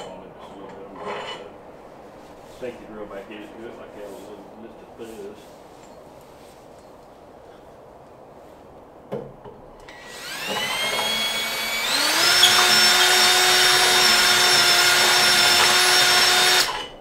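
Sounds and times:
cordless drill whining: 9.8 - 17.0.

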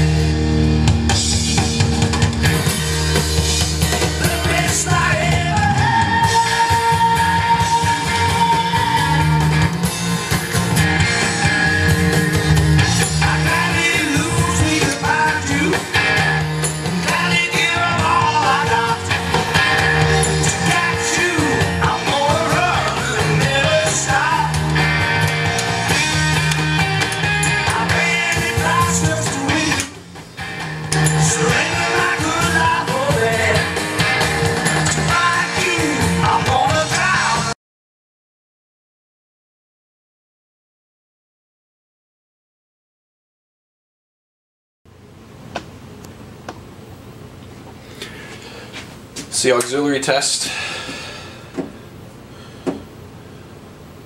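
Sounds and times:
rock song with singing and guitar: 0.0 - 37.6.

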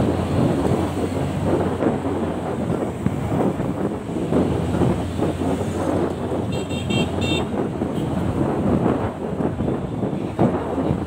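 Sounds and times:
road noise: 0.0 - 11.0
wind buffeting microphone: 0.0 - 11.0
vehicle horn short beeps: 6.5 - 7.5.

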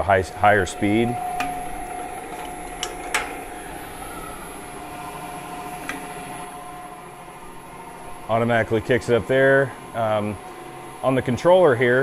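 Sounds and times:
drill press motor humming: 0.0 - 12.0.

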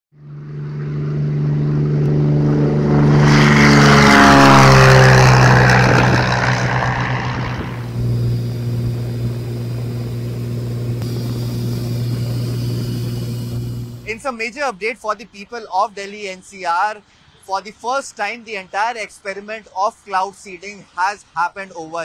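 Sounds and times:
engine drone inside cockpit: 0.2 - 14.1
propeller plane passing close: 0.2 - 14.1.

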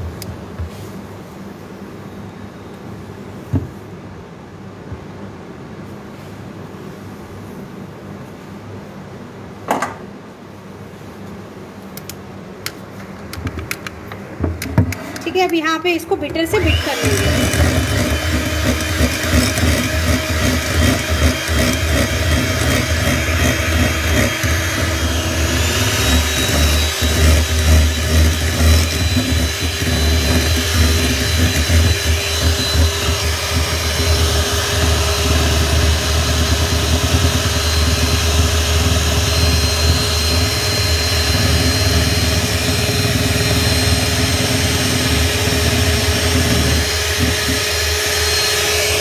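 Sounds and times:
electric hand mixer running: 14.6 - 49.0.

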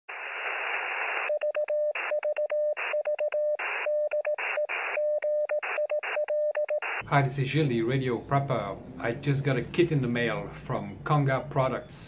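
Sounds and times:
radio static hiss: 0.1 - 1.4, 3.6 - 5.0, 6.8 - 7.6
morse code tone: 1.3 - 7.1.

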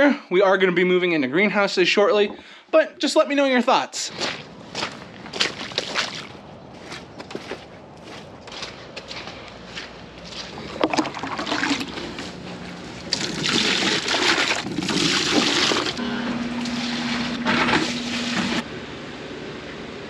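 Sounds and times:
steady low hum: 4.0 - 20.0
milk splashing into pails: 5.4 - 6.4, 10.3 - 16.0, 16.6 - 18.6.

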